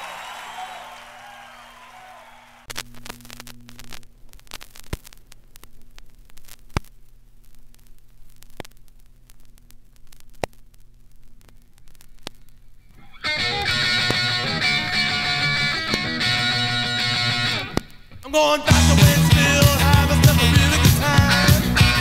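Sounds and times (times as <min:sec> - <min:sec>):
low electrical hum: 0:00.1 - 0:13.2
sharp clicks and crackles: 0:02.7 - 0:14.3.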